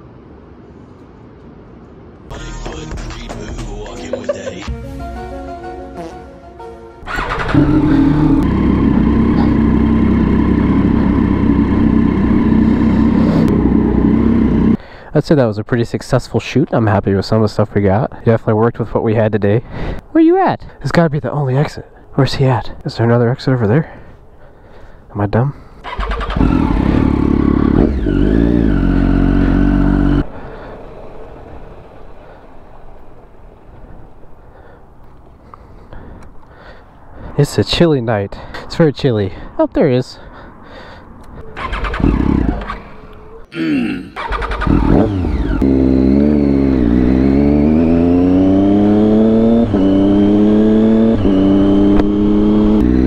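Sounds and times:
loud motorcycle engine running: 7.1s - 14.8s, 26.0s - 31.5s, 44.2s - 53.0s.

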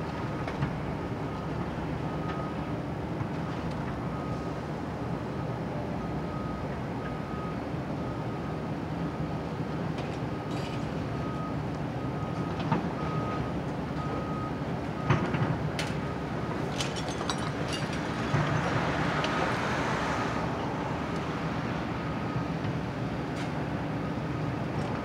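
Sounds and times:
debris crashing and clattering: 16.6s - 18.8s.

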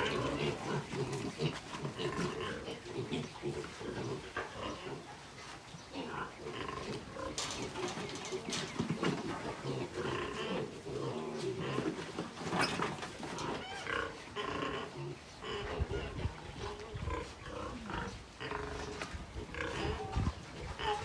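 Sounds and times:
pigs grunting: 0.0s - 5.2s, 5.9s - 21.0s
shrill pig squeals: 13.4s - 14.2s.

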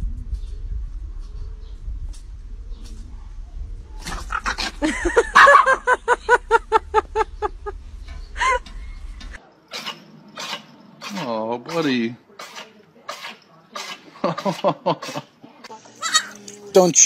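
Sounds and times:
dog yapping: 4.1s - 5.8s.

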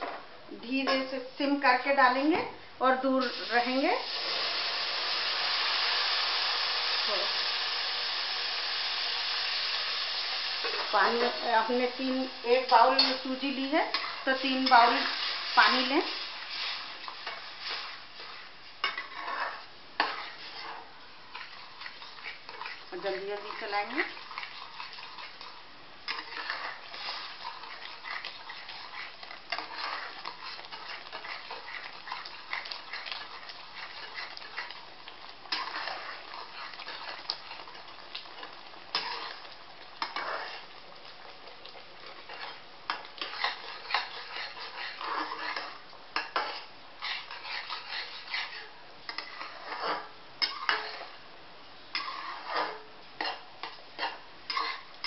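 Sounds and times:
metal spatula scraping pan: 10.6s - 34.8s, 35.4s - 40.8s, 42.0s - 51.2s, 51.9s - 54.9s.

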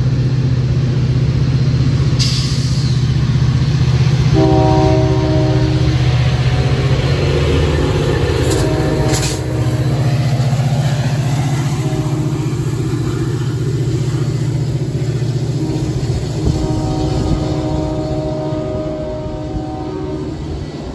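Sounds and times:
diesel locomotive engine throbbing: 0.0s - 20.9s
short sharp hisses: 2.2s - 3.1s.

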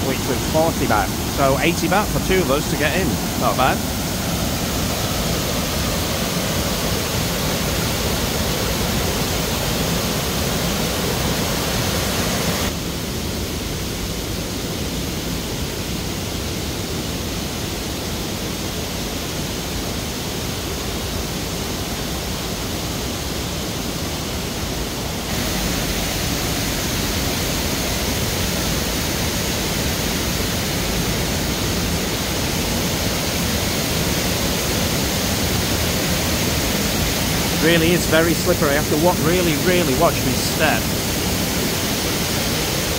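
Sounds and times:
waterfall pouring over rocks: 25.3s - 42.9s.

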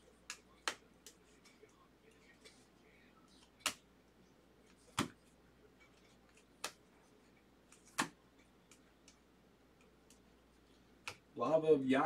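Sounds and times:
cards snapping: 7.7s - 9.2s.

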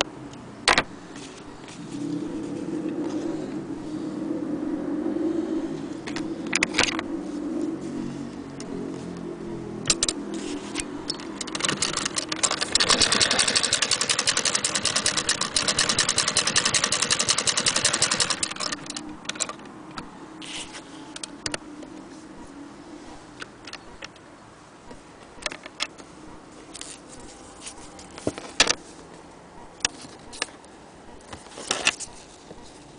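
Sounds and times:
machine clicks and knocks: 11.1s - 19.6s
sewing machine clattering: 11.4s - 19.5s.

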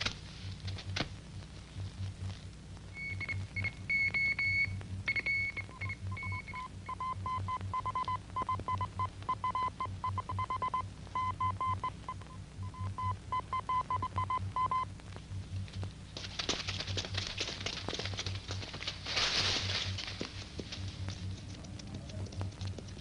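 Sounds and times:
pulsing low beat: 0.5s - 16.1s.

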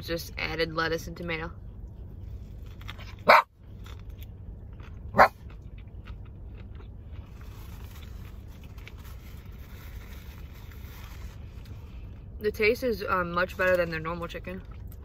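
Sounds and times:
low steady rumble: 0.0s - 15.0s
small dog barking: 3.2s - 3.5s, 5.2s - 5.4s.

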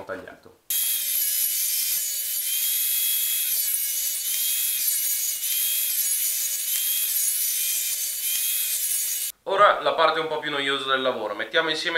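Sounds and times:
table saw ripping wood: 0.7s - 9.3s.

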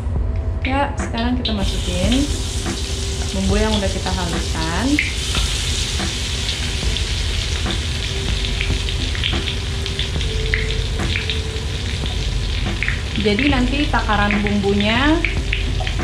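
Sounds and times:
paste sizzling in hot oil: 1.6s - 13.2s.

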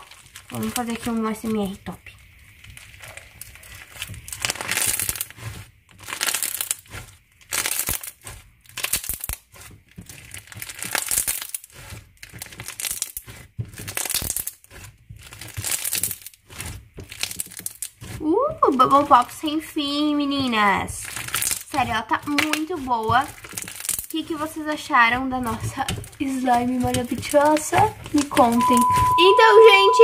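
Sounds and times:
crunchy slime squeezed by hand: 2.5s - 18.8s, 21.0s - 24.9s.

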